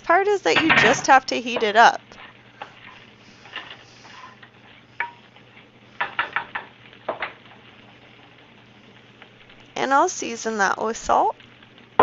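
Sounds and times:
spatula knocking and scraping a pan: 0:06.0 - 0:07.5.

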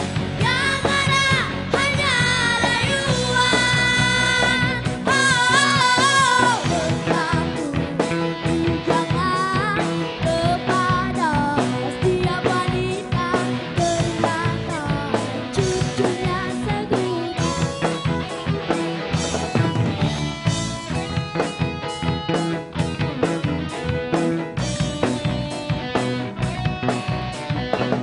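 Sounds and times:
live rock band playing: 0:00.0 - 0:28.0
women singing: 0:00.4 - 0:17.4.

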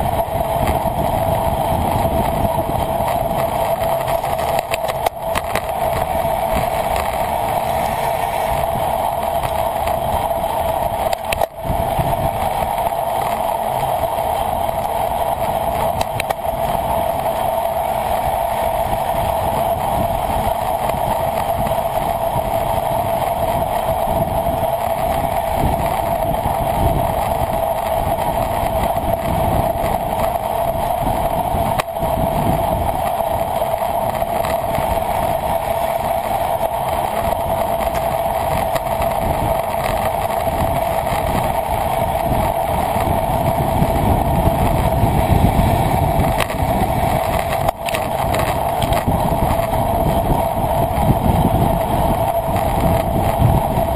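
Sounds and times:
low rumble: 0:00.0 - 0:20.6
wind noise on microphone: 0:00.0 - 0:53.9.

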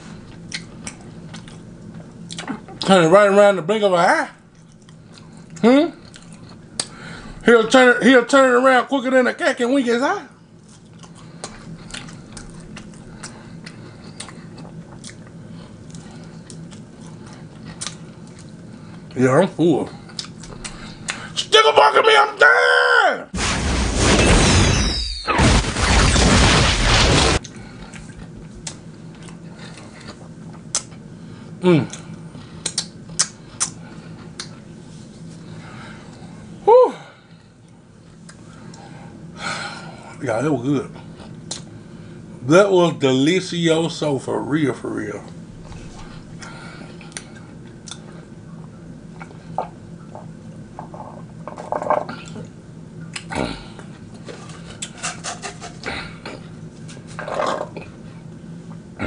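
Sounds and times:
explosion blast: 0:23.4 - 0:27.4.

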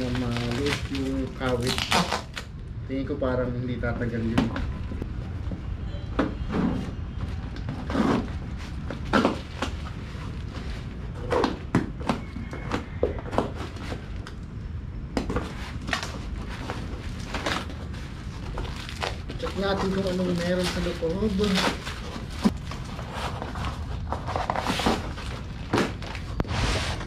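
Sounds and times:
package being opened: 0:00.0 - 0:02.5
rustling: 0:15.3 - 0:27.0.

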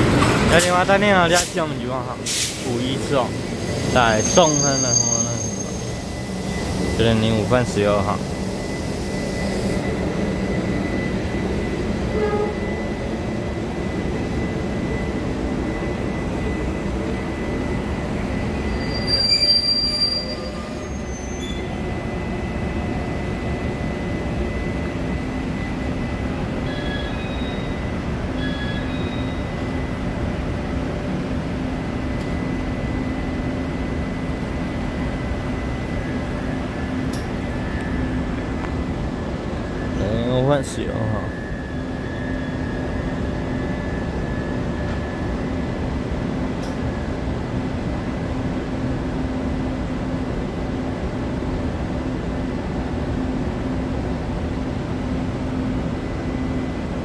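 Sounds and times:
train braking to a stop: 0:00.0 - 0:47.6, 0:48.2 - 0:57.0
standing train rumble and hum: 0:00.0 - 0:57.0
high-pitched brake squeal: 0:02.3 - 0:08.0, 0:08.6 - 0:13.0, 0:18.3 - 0:22.2, 0:26.6 - 0:29.8, 0:40.9 - 0:45.2.

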